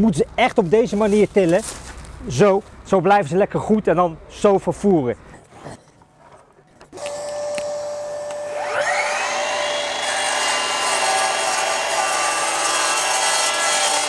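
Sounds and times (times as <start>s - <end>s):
mitre saw whining: 6.9s - 14.0s
saw grinding through cement plank: 7.0s - 14.0s.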